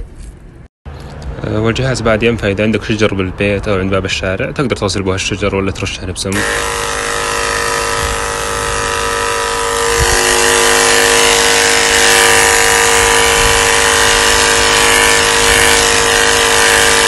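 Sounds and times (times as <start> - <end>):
pump motor whine: 6.3 - 17.0.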